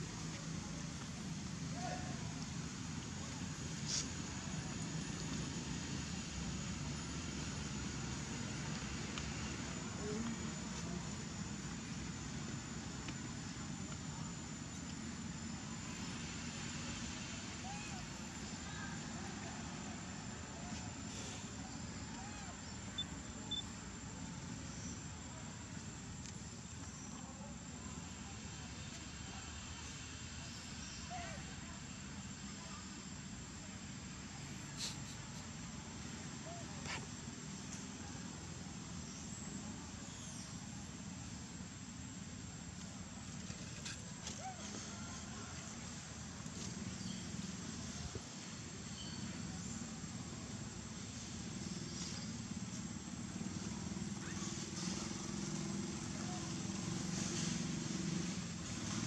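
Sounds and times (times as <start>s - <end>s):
insect drone: 0.0s - 44.2s, 44.9s - 59.0s
faint high chirps: 21.6s - 23.8s.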